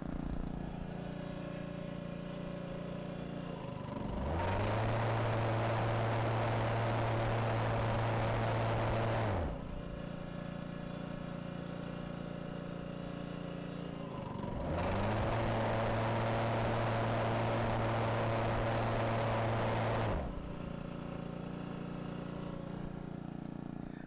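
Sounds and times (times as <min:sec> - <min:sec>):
mower engine running: 0:00.0 - 0:24.0
mower blade rush of air: 0:14.6 - 0:20.6.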